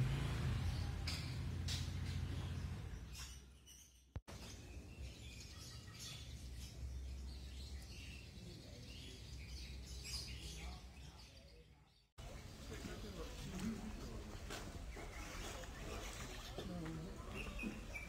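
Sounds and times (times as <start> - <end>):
small birds chirping: 0.6 - 18.0.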